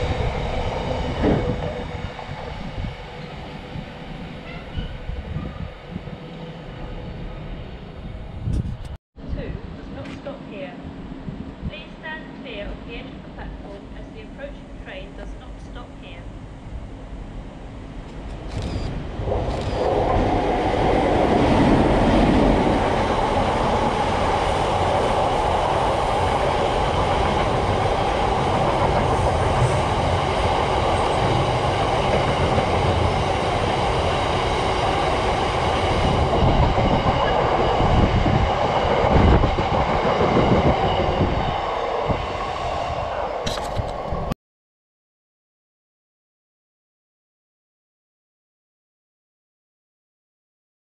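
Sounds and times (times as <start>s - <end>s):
train wheels on rails: 0.0s - 9.0s, 18.0s - 44.3s.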